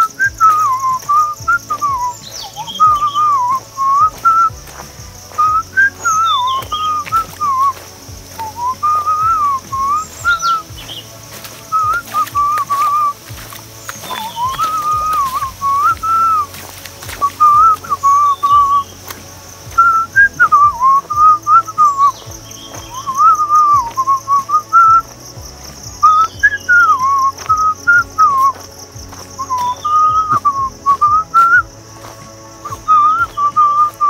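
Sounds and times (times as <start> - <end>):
person whistling a tune: 0.0 - 7.8, 8.4 - 11.0, 11.7 - 13.2, 14.0 - 16.6, 17.2 - 19.0, 19.8 - 22.2, 22.8 - 25.1, 26.0 - 28.6, 29.4 - 31.7, 32.6 - 34.0
steady high hiss: 0.0 - 34.0.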